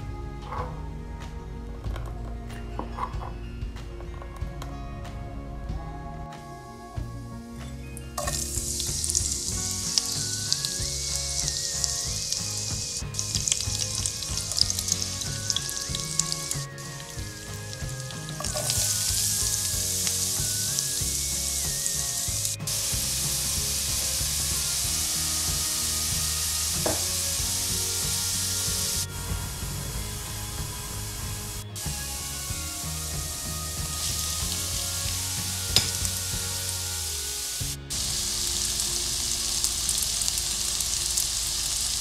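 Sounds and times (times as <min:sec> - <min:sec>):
hot oil sizzling in a pan: 0:08.2 - 0:29.6, 0:33.9 - 0:42.0.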